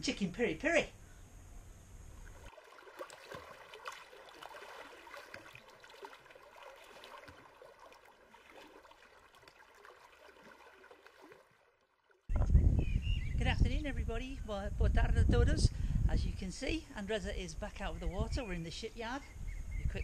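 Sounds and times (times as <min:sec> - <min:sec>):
faint trickling lapping water: 0:02.1 - 0:12.4.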